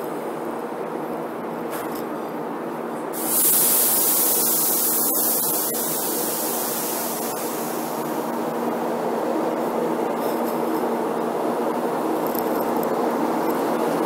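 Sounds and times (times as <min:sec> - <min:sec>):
train hum and rumble: 0:00.0 - 0:14.0
compressed air hissing: 0:03.2 - 0:08.5.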